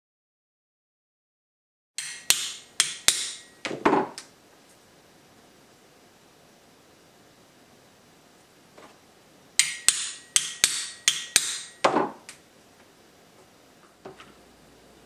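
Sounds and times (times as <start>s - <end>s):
hammer striking metal punch: 2.0s - 4.0s, 9.6s - 12.2s.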